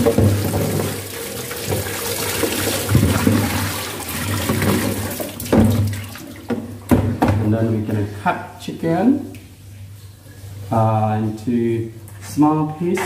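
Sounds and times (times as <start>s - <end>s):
tap running into basin: 0.0s - 7.4s.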